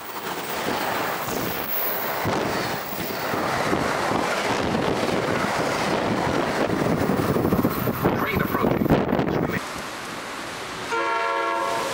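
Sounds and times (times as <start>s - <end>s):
train coaches rushing past: 0.0s - 9.6s
wind buffeting microphone: 0.2s - 9.6s.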